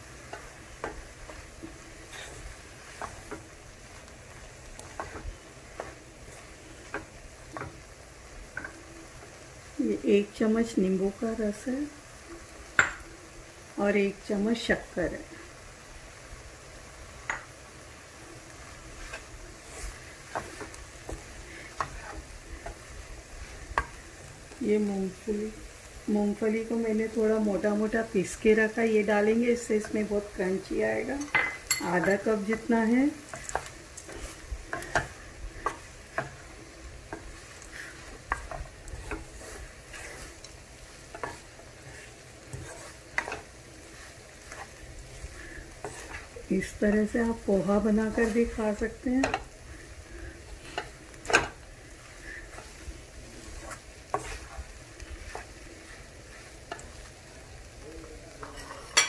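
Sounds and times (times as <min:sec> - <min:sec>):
spatula scraping frying pan: 0:00.0 - 0:09.4, 0:18.5 - 0:24.6, 0:27.6 - 0:57.6, 0:58.3 - 0:59.0
low sizzle: 0:00.0 - 0:59.0
spatula knocking on pan: 0:12.8 - 0:13.0.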